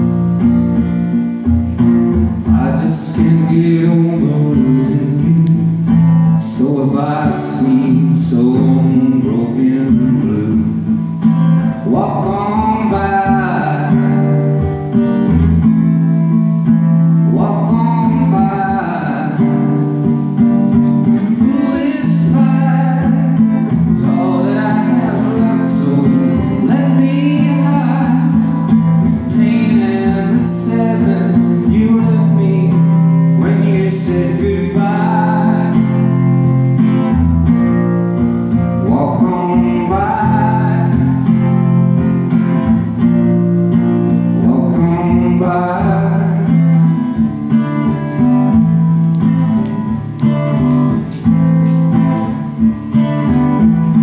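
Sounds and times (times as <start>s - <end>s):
strummed acoustic guitar: 0.0s - 54.0s
man singing: 2.4s - 11.0s, 11.6s - 14.6s, 17.2s - 19.8s, 21.0s - 36.3s, 38.5s - 41.4s, 44.3s - 47.1s.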